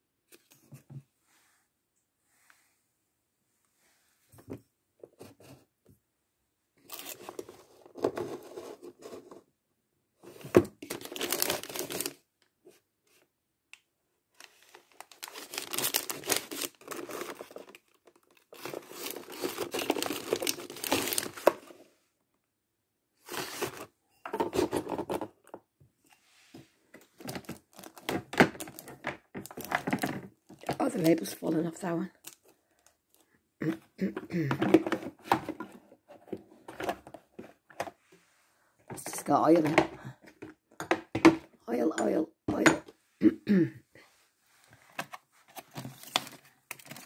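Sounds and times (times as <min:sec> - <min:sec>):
plastic packaging crinkling: 0:10.8 - 0:12.2, 0:14.4 - 0:21.7, 0:27.2 - 0:31.4, 0:44.9 - 0:47.0.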